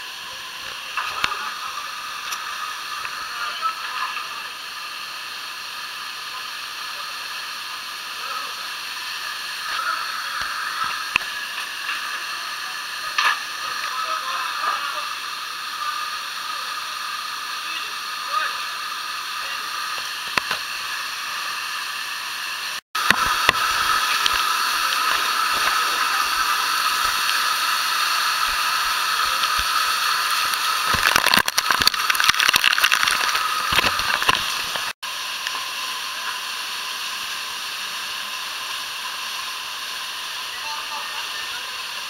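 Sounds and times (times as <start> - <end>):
waterfall roaring: 23.0 - 34.9
short crackles and clicks: 28.4 - 35.6.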